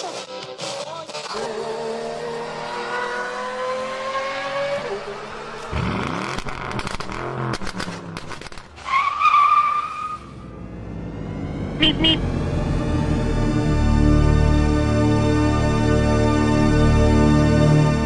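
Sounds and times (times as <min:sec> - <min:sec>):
car engine revving: 0:00.0 - 0:08.7, 0:10.0 - 0:14.3.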